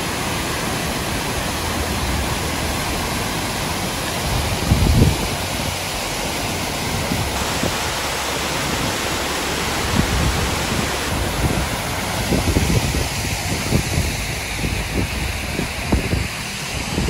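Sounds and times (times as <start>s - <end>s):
waterfall rushing into a pool: 0.0s - 17.0s
wind buffeting the microphone: 3.8s - 17.0s.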